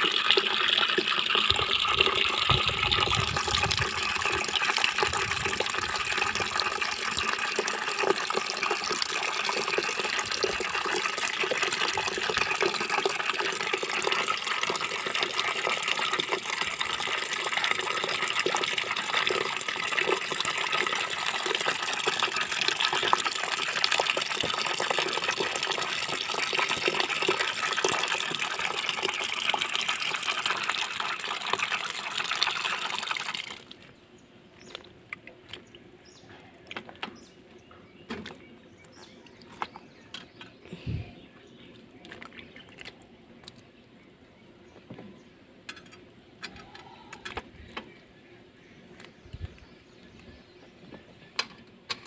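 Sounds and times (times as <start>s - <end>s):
water pouring into metal bucket: 0.0s - 33.8s.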